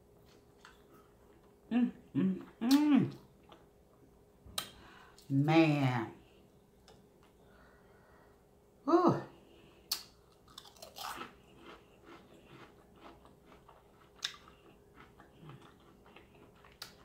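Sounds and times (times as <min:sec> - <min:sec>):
person crunching fried food: 0:09.9 - 0:17.0.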